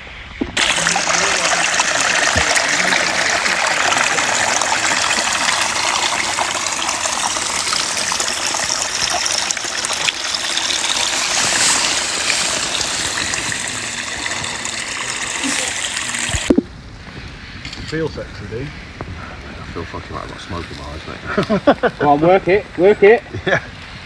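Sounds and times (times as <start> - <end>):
stream trickling: 0.4 - 16.8.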